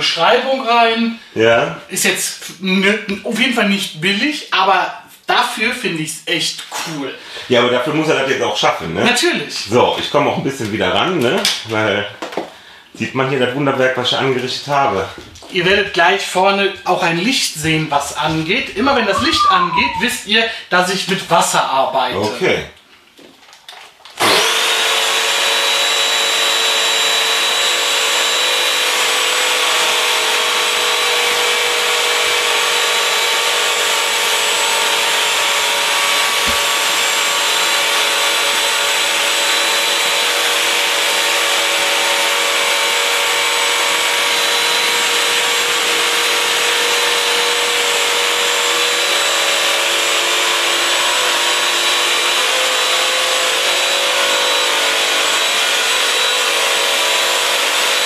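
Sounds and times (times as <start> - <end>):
floor cleaner whining: 18.3 - 20.3, 24.2 - 58.0.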